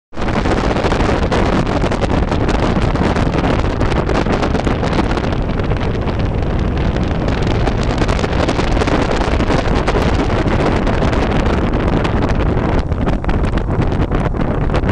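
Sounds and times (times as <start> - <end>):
wind buffeting microphone: 0.1 - 14.9
engine and tyres on road: 4.0 - 14.9.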